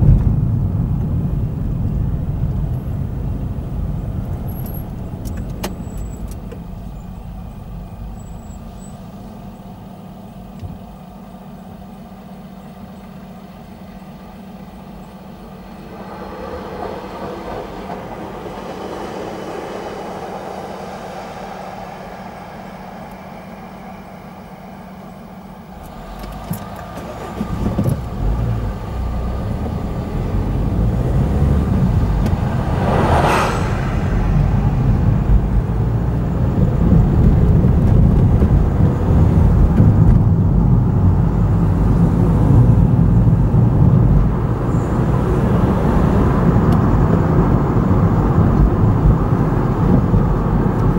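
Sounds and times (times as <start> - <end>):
car engine and tyre rumble: 0.0 - 50.9
brief whoosh: 15.6 - 25.5, 30.9 - 36.9.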